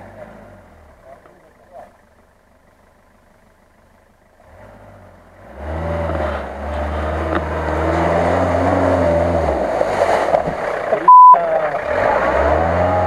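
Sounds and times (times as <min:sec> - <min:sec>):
off-road vehicle engine under load: 0:00.0 - 0:13.0
water and mud splashing: 0:06.7 - 0:12.9.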